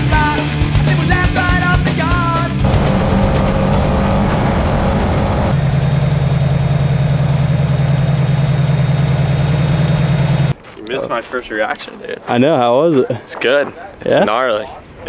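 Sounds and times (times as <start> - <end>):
rock music with singing: 0.0 - 3.0
truck engine at low revs: 2.6 - 10.5.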